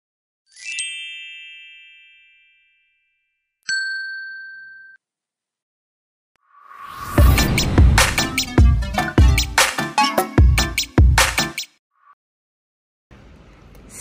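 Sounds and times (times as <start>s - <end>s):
click with bell ding: 3.7s - 5.0s.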